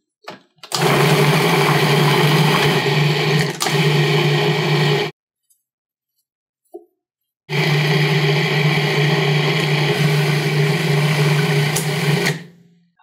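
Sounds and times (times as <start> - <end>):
food processor motor running: 0.7 - 5.1, 7.5 - 12.5.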